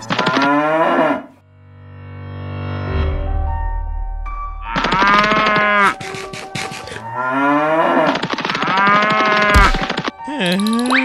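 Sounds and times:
background music: 0.0 - 11.0
cow mooing: 0.2 - 1.4, 4.8 - 6.0, 7.1 - 9.7.

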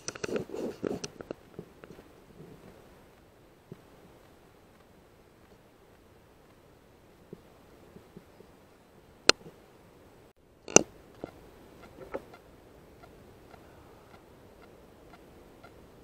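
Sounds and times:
sharp clicks: 10.6 - 12.4
faint ticking: 10.6 - 16.0.

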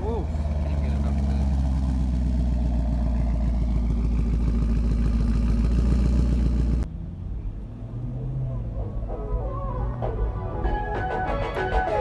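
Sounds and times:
car engine idling: 0.0 - 7.8.

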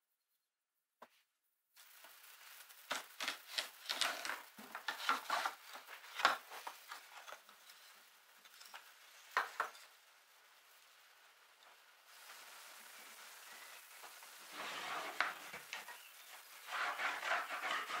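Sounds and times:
knife scraping wood: 14.5 - 16.0, 16.6 - 18.0.

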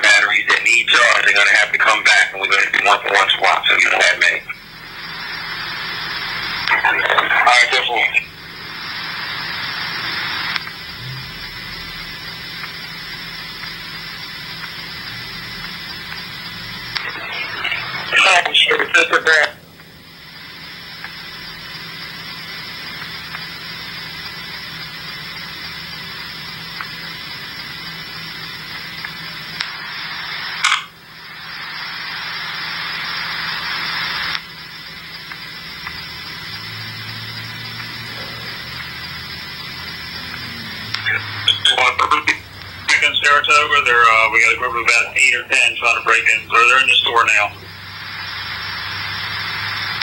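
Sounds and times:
radio click: 0.0 - 10.8, 16.9 - 19.9, 29.0 - 34.6, 35.2 - 36.1, 37.7 - 50.0
radio static hiss: 0.0 - 50.0.

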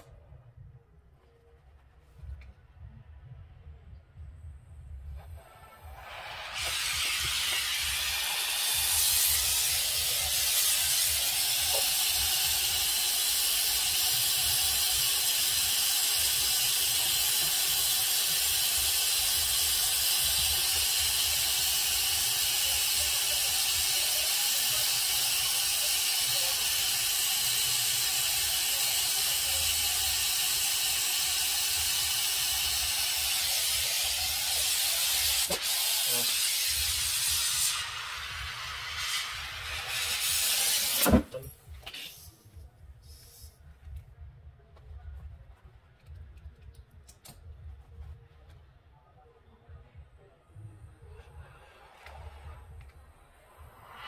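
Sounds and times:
brazing torch flame hissing: 5.1 - 43.7.

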